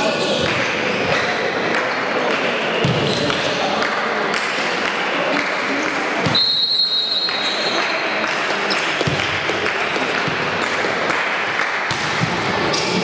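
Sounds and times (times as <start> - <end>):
crowd and hall noise: 0.0 - 13.0
referee's whistle blast: 6.3 - 7.7.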